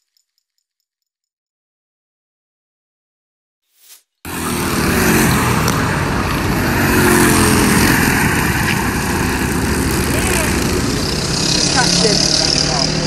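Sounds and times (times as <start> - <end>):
racing kart engines: 4.3 - 13.0.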